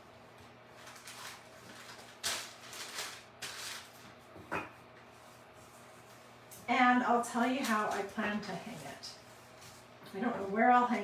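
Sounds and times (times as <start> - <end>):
paper rustling: 0.7 - 4.2.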